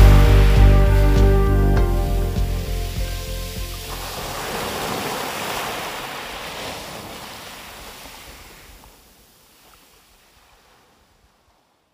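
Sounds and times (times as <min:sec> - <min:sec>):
small waves breaking on beach: 0:02.8 - 0:11.9.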